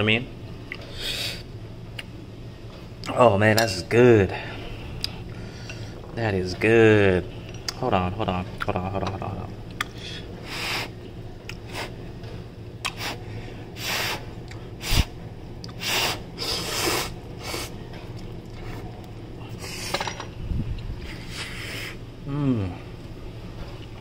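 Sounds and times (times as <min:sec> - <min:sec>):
noodle slurping: 0:14.8 - 0:17.7.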